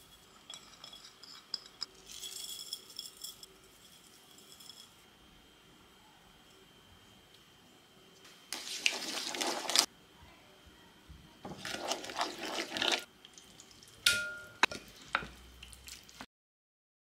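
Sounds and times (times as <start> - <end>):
ceramic bowl clink: 0.0 - 3.5, 14.1 - 14.8
spoon stirring marinade in bowl: 8.5 - 9.9, 11.4 - 13.8.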